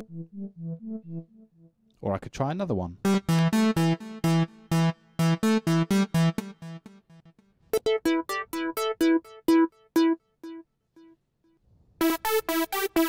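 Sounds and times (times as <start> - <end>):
repeated synth lead notes: 0.0 - 1.9, 3.0 - 11.1.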